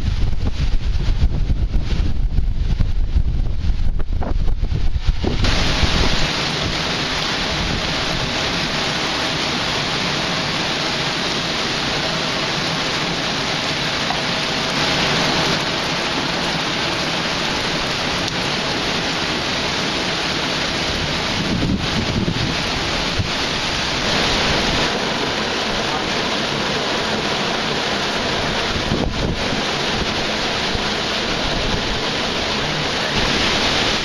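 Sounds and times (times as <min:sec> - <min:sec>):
heavy rain hissing: 0:00.0 - 0:34.0.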